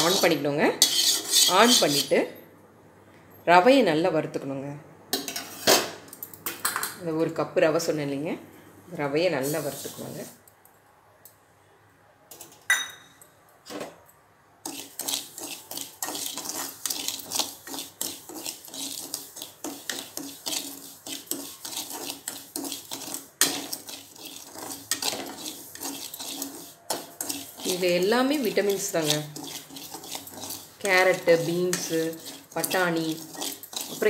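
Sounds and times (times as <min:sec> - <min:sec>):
metal spatula scraping semolina: 0:00.0 - 0:02.3, 0:09.4 - 0:10.4, 0:14.6 - 0:34.0.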